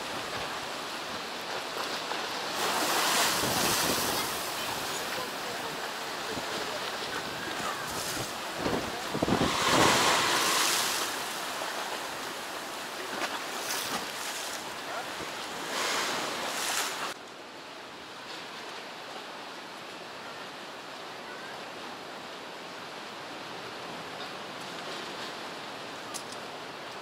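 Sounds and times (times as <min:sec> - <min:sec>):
choppy sea water: 0:00.0 - 0:27.0
storm wind buffeting microphone: 0:02.6 - 0:11.3.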